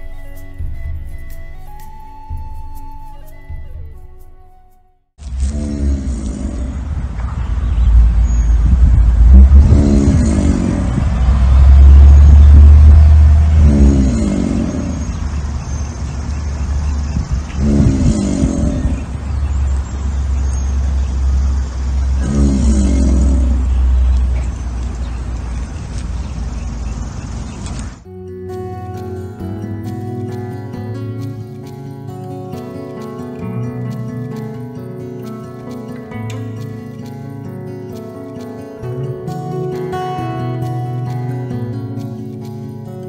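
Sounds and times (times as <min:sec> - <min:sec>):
alligator bellowing: 0:05.2 - 0:07.2, 0:09.2 - 0:28.0
steady deep rumble: 0:05.2 - 0:28.0.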